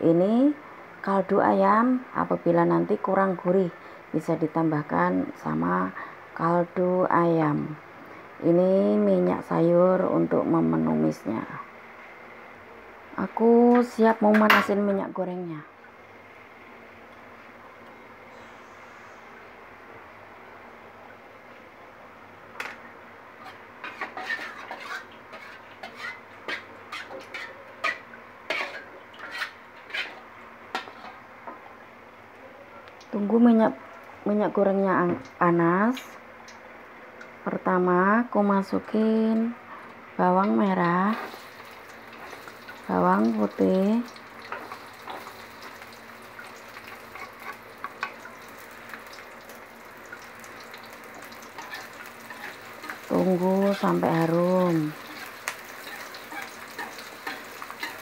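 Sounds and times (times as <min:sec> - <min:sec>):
faint steady hiss: 0:00.0 - 0:26.9
shallots sizzling in oil: 0:23.3 - 0:31.2, 0:40.5 - 0:58.0
metal spatula scraping wok: 0:23.4 - 0:31.2, 0:51.6 - 0:54.0, 0:54.8 - 0:58.0.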